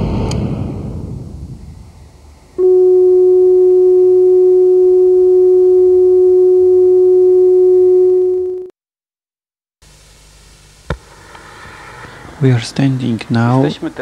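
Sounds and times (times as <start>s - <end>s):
rumble: 0.0s - 5.4s
loud steady low tone: 0.3s - 8.7s.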